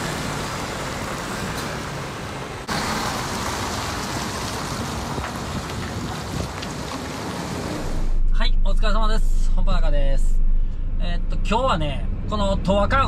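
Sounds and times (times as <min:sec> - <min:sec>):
diesel truck engine pulling away: 0:00.0 - 0:08.2
road noise: 0:00.0 - 0:13.0.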